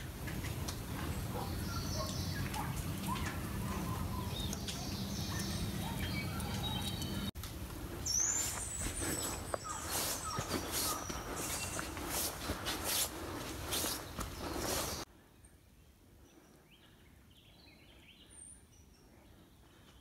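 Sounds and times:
small birds chirping: 0:00.4 - 0:20.0
footsteps on dirt trail: 0:07.5 - 0:15.1.

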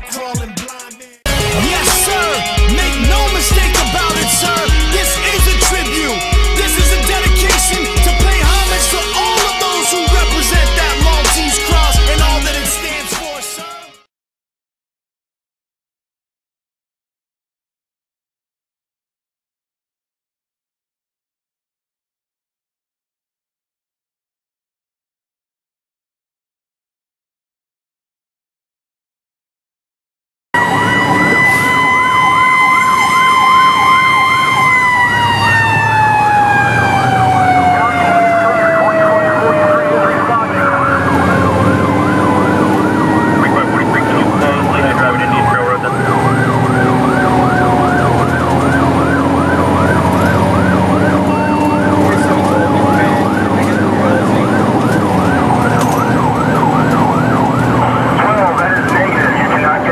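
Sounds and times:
truck engine running: 0:01.3 - 0:13.4, 0:30.6 - 0:59.9
steady howling siren: 0:01.3 - 0:13.7, 0:30.6 - 0:59.9
electronic yelp siren: 0:01.3 - 0:14.0, 0:30.6 - 0:59.9.

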